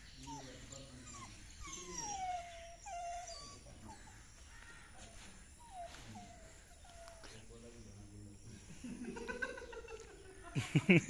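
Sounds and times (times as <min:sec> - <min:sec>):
dog whining: 0:00.0 - 0:04.4, 0:05.5 - 0:07.3.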